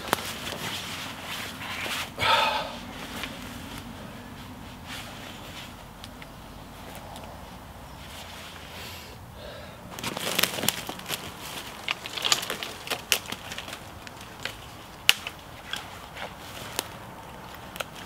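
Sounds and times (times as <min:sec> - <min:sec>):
leaves and twigs crackling underfoot: 0:00.0 - 0:08.9, 0:09.8 - 0:18.0
twig snapping: 0:10.0 - 0:18.0.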